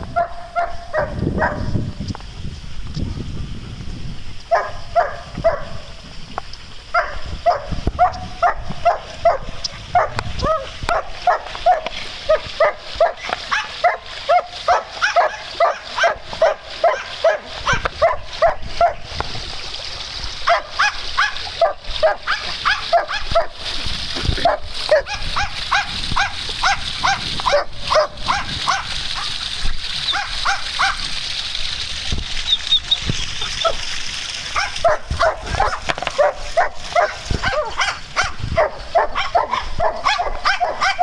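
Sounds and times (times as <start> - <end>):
dog barking: 0.1 - 1.7, 4.5 - 5.8, 6.9 - 19.0, 20.4 - 23.6, 24.4 - 29.4, 30.1 - 31.0, 34.5 - 41.0.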